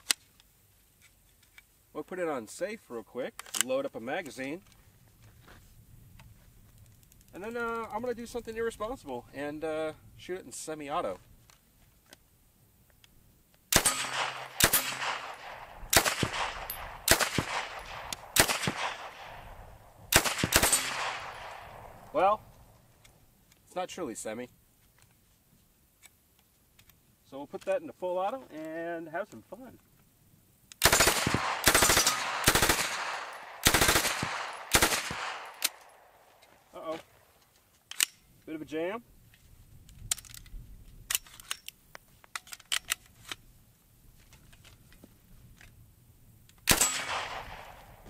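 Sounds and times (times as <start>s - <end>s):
gunshots: 13.7s - 22.2s, 30.8s - 36.1s, 46.7s - 48.0s
submachine gun automatic bursts: 13.8s - 19.5s, 20.1s - 22.0s, 30.8s - 35.9s, 46.7s - 47.7s.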